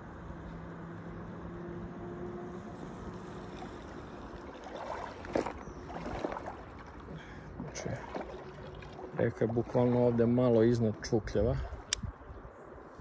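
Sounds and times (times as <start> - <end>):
river water flowing: 0.8 - 12.3
water splashing: 2.8 - 11.9.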